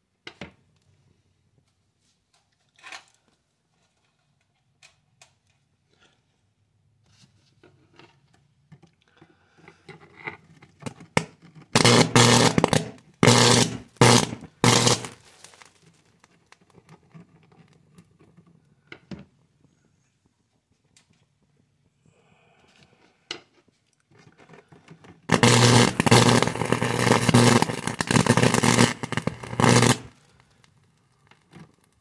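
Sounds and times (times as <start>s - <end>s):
electrical crackles and pops: 10.7s - 18.4s, 25.1s - 32.0s
buzzing electrical arcing: 11.2s - 15.8s, 25.3s - 30.4s.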